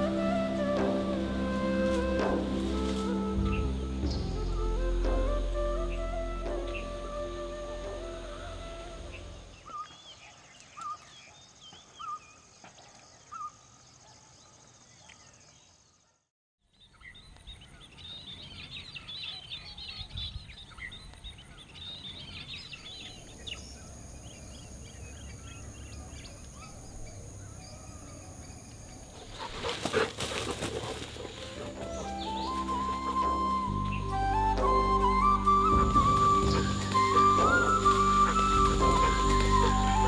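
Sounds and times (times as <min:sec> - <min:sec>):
bird chirping: 0:01.5 - 0:40.0
many small birds chirping: 0:16.7 - 0:33.6.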